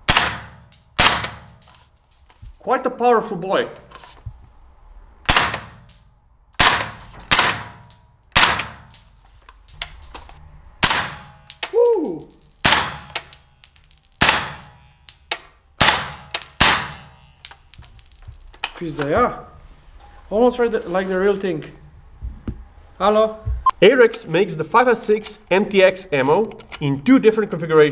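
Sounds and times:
rifle shots: 0.1 - 1.6, 5.3 - 5.9, 6.6 - 9.0, 10.8 - 11.5, 12.6 - 13.2, 14.2 - 14.8, 15.8 - 17.2.

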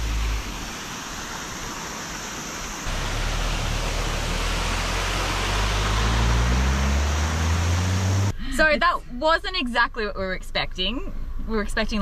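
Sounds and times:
water rushing over weir: 0.0 - 8.3
low hum rising in pitch: 2.9 - 8.3.

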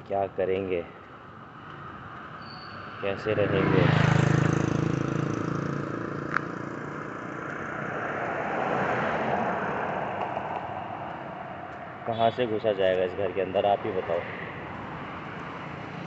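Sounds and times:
rushing road noise: 0.0 - 16.0
car passing by: 2.5 - 12.0.

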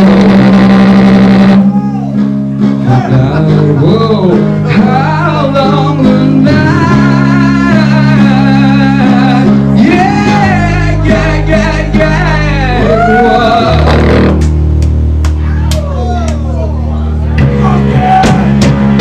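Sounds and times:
rock music with guitar: 0.0 - 15.4, 17.2 - 19.0
person singing long notes: 2.9 - 14.4.

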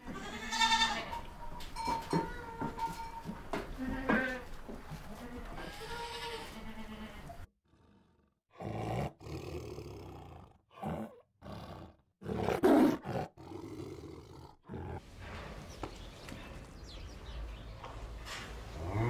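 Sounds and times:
goats bleating: 0.0 - 1.2, 3.8 - 7.4
tiger roaring: 7.7 - 15.1.

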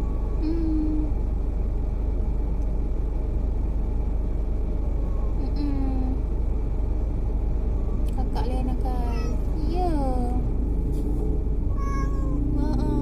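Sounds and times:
car road and engine rumble: 0.0 - 13.0
cat meowing: 11.7 - 12.6.

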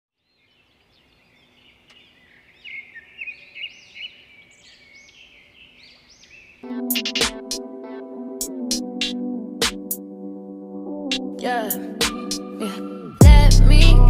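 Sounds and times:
birds chirping: 0.2 - 7.5
music: 6.6 - 14.0.

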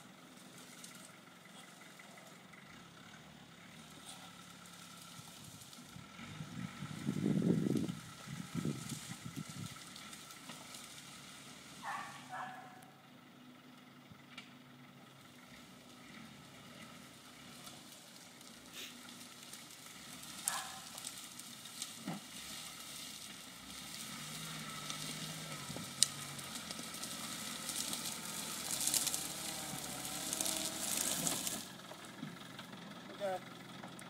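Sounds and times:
faint engine idling: 0.0 - 34.0
footsteps crunching through dry leaves: 17.7 - 31.7
twigs snapping: 19.1 - 22.1, 24.7 - 31.6.

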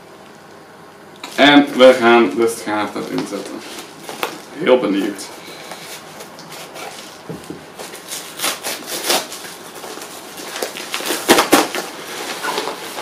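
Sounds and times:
mailer bag rustling and crinkling: 5.8 - 13.0.

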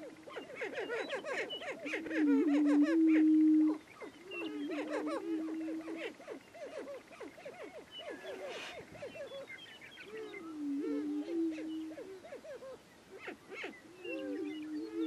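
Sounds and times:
prairie chickens cackling: 0.0 - 15.0.

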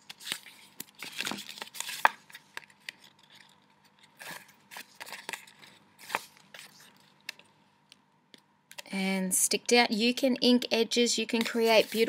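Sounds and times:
paper and tape rustling: 0.0 - 7.5, 11.3 - 12.0.

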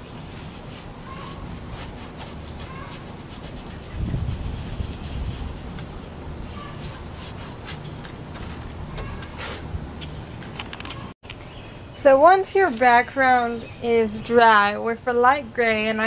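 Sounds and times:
paintbrush scrubbing canvas: 0.0 - 9.7.

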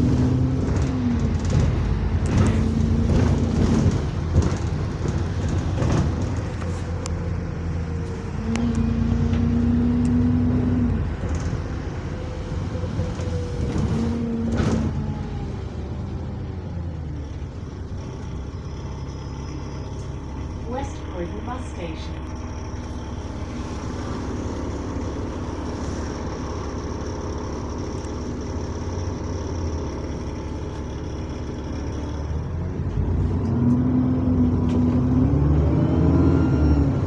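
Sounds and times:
bus engine rumbling with whine: 0.0 - 37.0
knocks and rattles: 0.6 - 6.8.

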